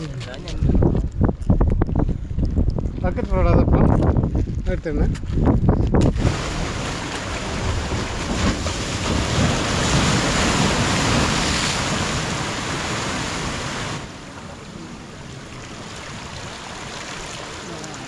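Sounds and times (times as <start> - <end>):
wind on microphone: 0.0 - 14.1
surf washing over rocks: 6.0 - 18.0.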